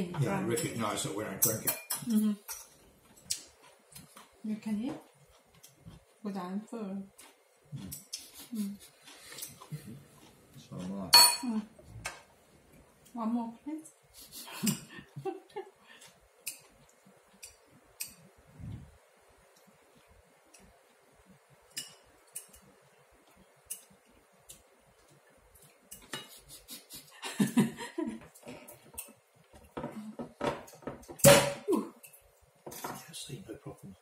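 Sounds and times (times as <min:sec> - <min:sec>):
cutlery clicking on china: 0:01.4 - 0:04.2, 0:16.4 - 0:18.3, 0:21.7 - 0:22.7, 0:23.6 - 0:24.6
clatter of dishes: 0:28.2 - 0:31.7, 0:32.7 - 0:33.1.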